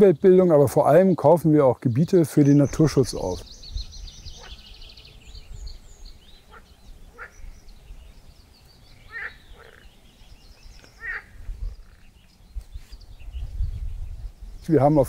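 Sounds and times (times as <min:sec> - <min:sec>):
wavering animal calls: 0:04.2 - 0:05.2, 0:06.4 - 0:07.6, 0:09.0 - 0:09.9, 0:10.9 - 0:12.2.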